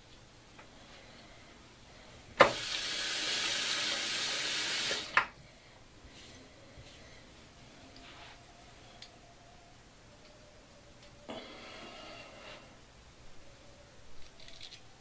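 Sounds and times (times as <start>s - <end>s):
water running from tap: 2.4s - 5.2s.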